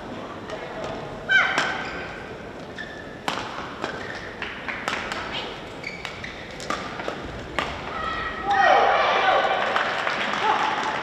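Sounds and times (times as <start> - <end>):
shoes squeaking on court: 1.7 - 4.4, 5.0 - 7.3.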